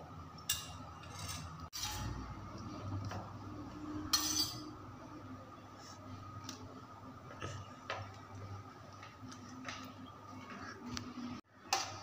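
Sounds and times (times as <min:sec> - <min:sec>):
metal spoon clinking on steel bowl: 0:00.5 - 0:02.1, 0:04.1 - 0:04.7.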